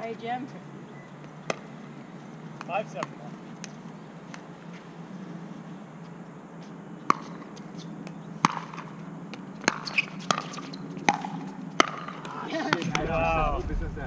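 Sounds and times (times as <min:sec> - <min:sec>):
paddles hitting plastic ball: 0:07.1 - 0:12.9.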